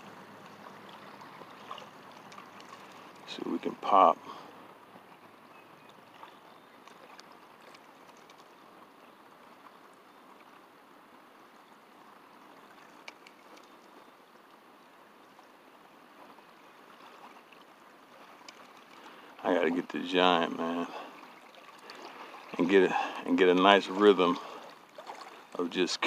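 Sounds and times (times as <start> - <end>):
faint outdoor background noise: 0.0 - 26.0
soft ticks: 13.0 - 13.9, 18.4 - 19.0.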